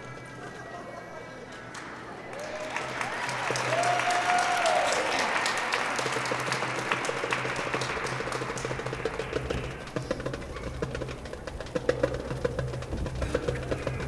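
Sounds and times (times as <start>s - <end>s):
long held cheer: 0.7s - 10.0s
audience applauding: 1.6s - 14.0s.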